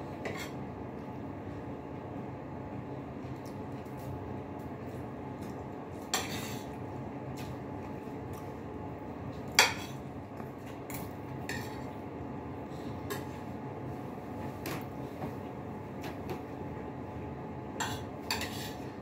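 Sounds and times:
cutlery clinking on dishes: 0:17.8 - 0:18.8.

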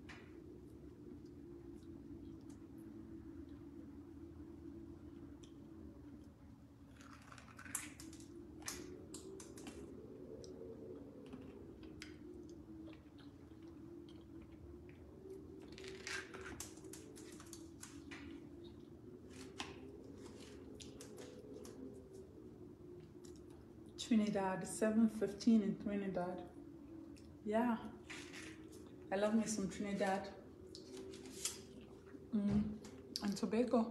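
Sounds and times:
steady low hum: 0:00.0 - 0:33.9.

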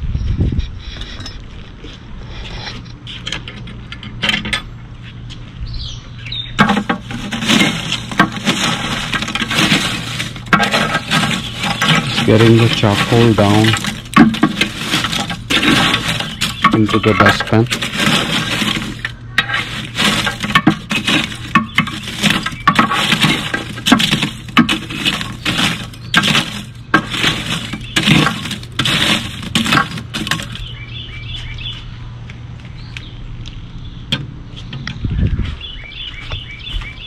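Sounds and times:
steady low hum: 0:00.0 - 0:37.0
charcoal clinking and scraping: 0:06.6 - 0:30.8.

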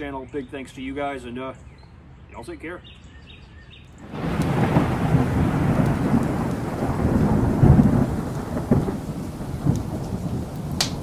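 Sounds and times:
rolling thunder: 0:04.0 - 0:11.0
steady rain: 0:04.0 - 0:11.0.

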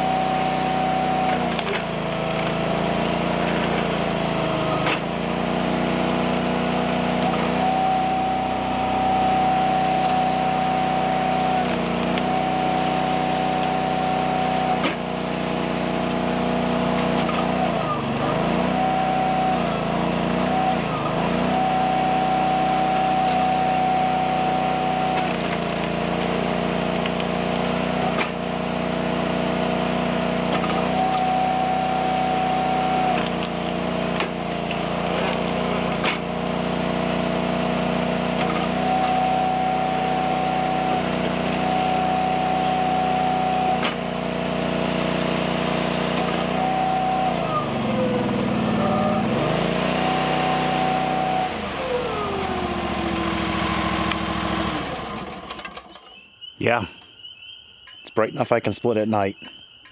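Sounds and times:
log splitter engine running: 0:00.0 - 0:56.2
sharp knocks of machine and wood: 0:04.8 - 0:05.1, 0:14.8 - 0:15.1, 0:16.9 - 0:17.6, 0:25.1 - 0:28.4, 0:30.4 - 0:31.3, 0:33.2 - 0:36.4, 0:38.4 - 0:39.3, 0:43.8 - 0:44.1.

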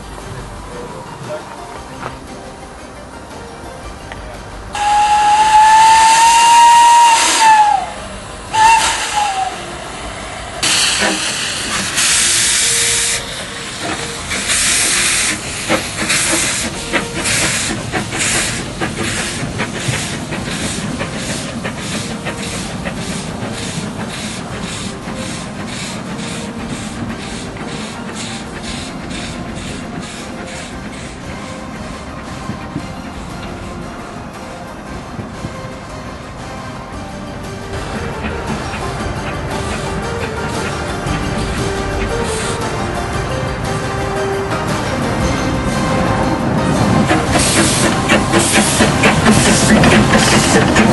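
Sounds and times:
locomotive exhaust beats: 0:00.0 - 0:50.9
steam locomotive whistle: 0:04.7 - 0:31.6, 0:45.2 - 0:50.9
steam hissing: 0:04.7 - 0:50.9.

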